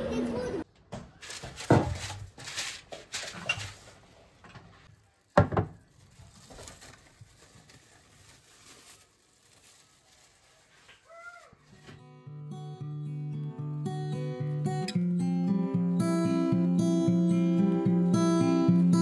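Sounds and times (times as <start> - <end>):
paper rustling: 1.1 - 12.0
cling film crinkling: 1.2 - 4.2, 4.8 - 12.0.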